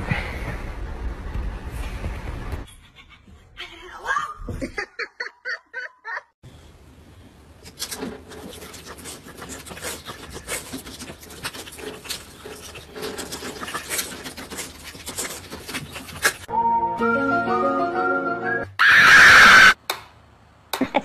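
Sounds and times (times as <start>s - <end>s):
dog licking and slurping: 8.0s - 16.5s.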